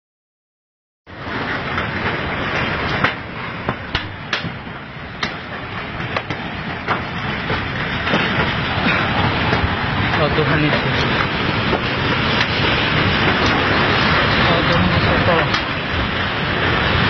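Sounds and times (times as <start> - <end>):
earthquake rushing rumble: 1.1 - 17.0
sharp cracks: 1.7 - 14.4.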